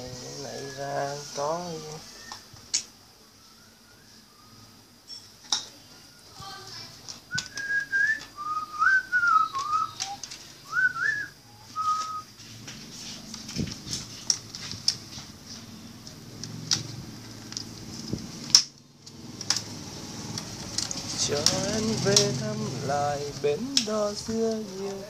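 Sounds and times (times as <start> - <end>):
person whistling a melody: 2.0 - 2.5, 3.4 - 4.6, 7.3 - 12.3.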